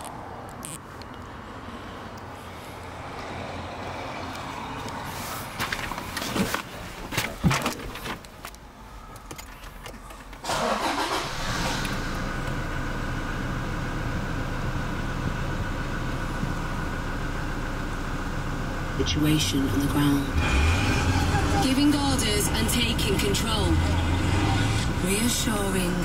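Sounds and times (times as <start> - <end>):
diesel engine starting and idling: 9.1 - 26.0.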